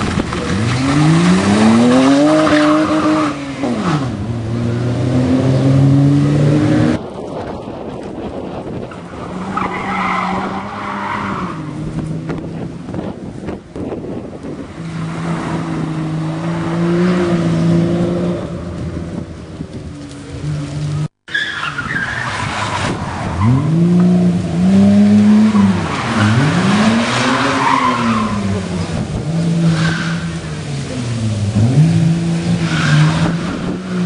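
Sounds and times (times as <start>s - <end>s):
rally car engine revving: 0.0s - 7.0s, 22.4s - 34.0s.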